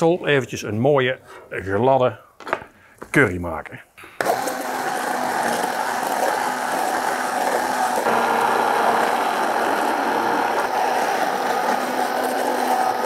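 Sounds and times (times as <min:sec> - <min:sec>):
immersion blender running: 0:04.2 - 0:13.0.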